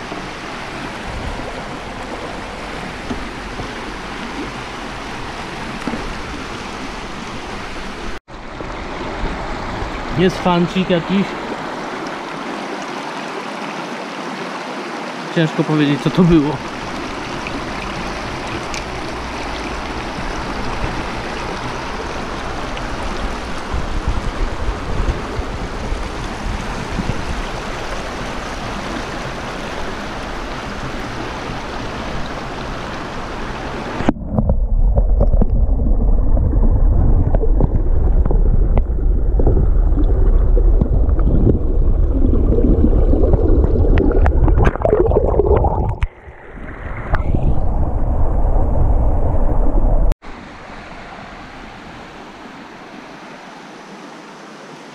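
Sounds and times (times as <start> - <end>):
deep muffled rumble: 34.0 - 46.1, 47.0 - 50.2.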